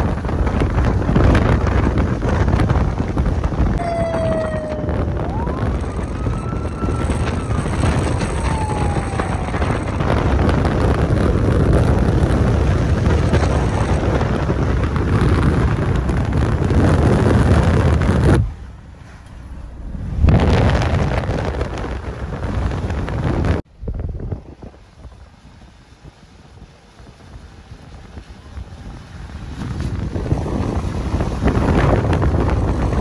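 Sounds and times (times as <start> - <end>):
storm wind buffeting microphone: 0.0 - 33.0
faint siren: 3.8 - 10.9.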